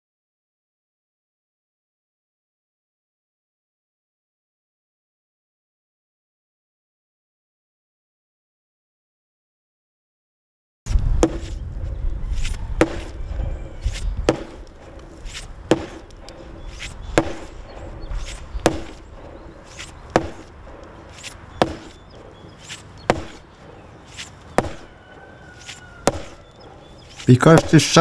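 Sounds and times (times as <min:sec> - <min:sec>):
blows striking wood: 0:10.9 - 0:28.0.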